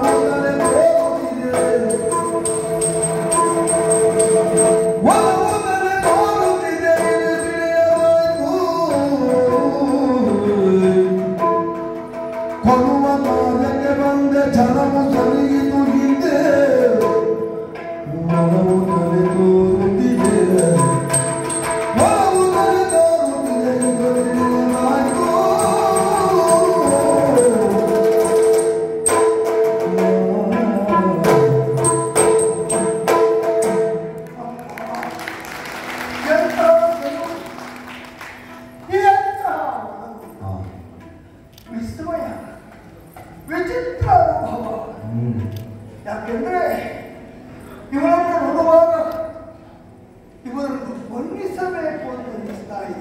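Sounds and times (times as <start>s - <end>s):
man singing gliding melodies: 0.0s - 11.8s, 12.6s - 28.8s, 29.8s - 32.9s
hand drum: 0.0s - 39.4s.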